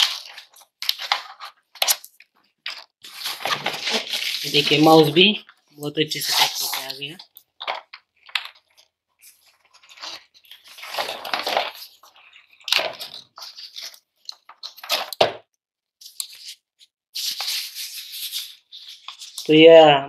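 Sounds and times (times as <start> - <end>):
packaging wrap rustling: 0.0 - 15.4.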